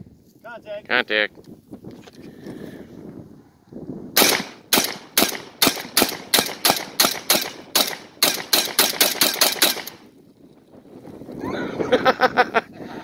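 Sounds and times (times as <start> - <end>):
shotgun fired rapidly: 4.2 - 10.0.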